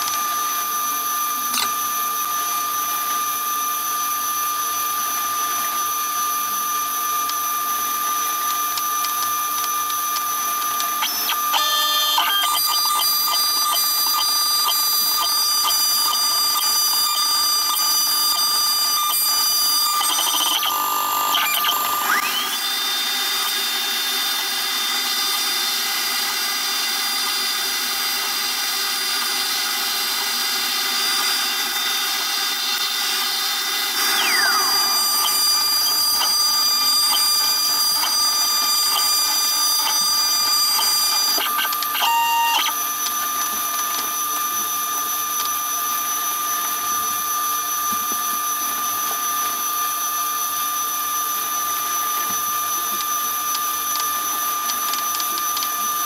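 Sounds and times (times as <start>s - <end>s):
router spindle whine: 0.0s - 56.0s
second machine tone: 11.0s - 22.9s, 33.8s - 42.8s.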